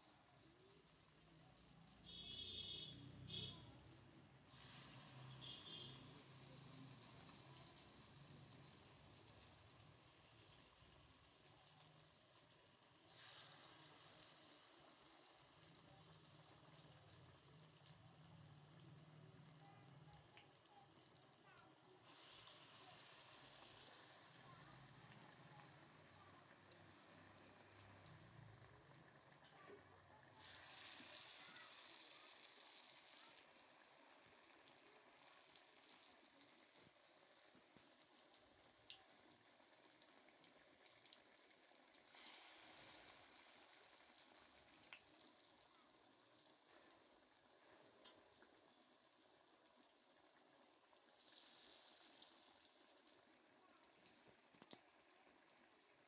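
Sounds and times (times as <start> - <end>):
food deep-frying in oil: 0.0 - 56.0
small oil pops: 54.5 - 54.8.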